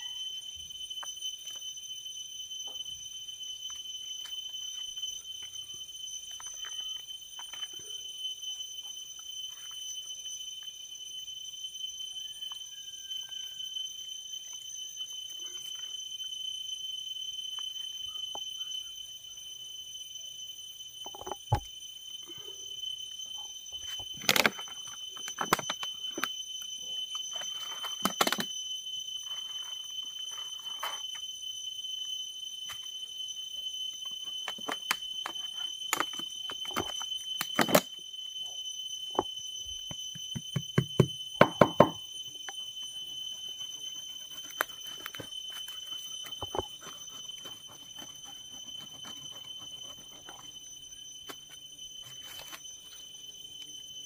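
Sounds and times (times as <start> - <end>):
knocks and taps on bamboo: 39.9 - 42.0.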